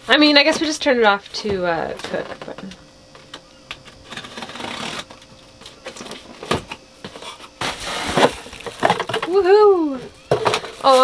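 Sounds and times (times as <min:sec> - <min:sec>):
knife scraping on cardboard: 0:07.0 - 0:08.4
cardboard rustling and sliding: 0:07.1 - 0:09.1.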